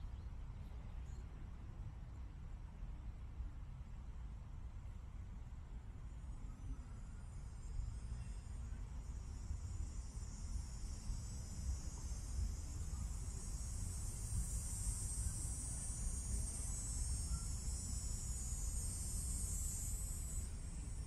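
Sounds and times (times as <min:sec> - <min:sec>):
high-pitched insect drone: 0:06.1 - 0:21.0.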